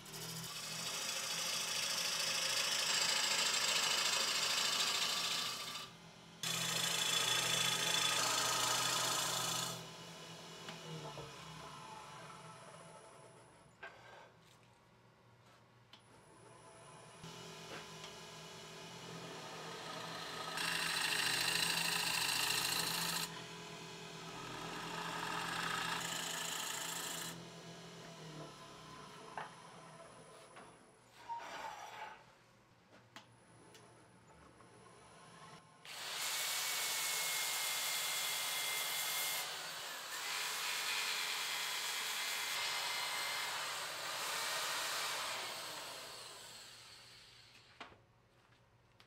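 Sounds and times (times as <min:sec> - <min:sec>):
wood lathe humming: 0:00.8 - 0:12.7, 0:17.3 - 0:28.8
lathe motor hum: 0:17.3 - 0:29.6.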